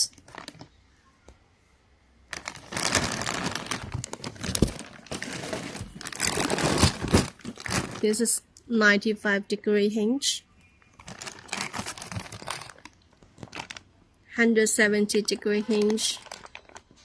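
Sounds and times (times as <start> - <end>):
plastic bags crinkling: 0.0 - 0.8, 2.2 - 8.3, 10.9 - 14.1, 15.0 - 17.0.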